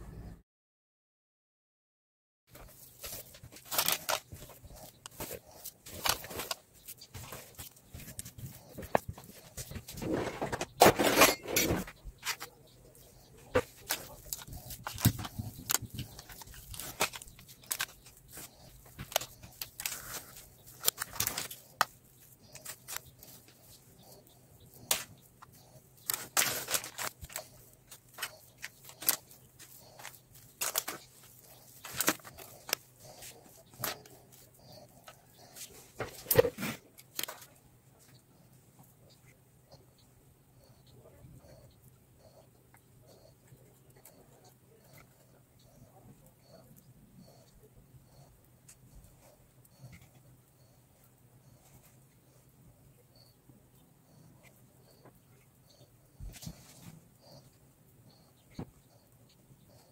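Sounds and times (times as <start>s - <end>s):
faint low hum: 0.0s - 0.4s.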